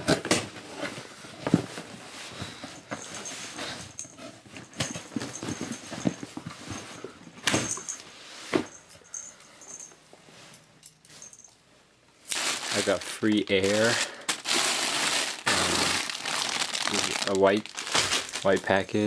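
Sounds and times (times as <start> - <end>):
packing tape tearing: 12.3 - 18.8.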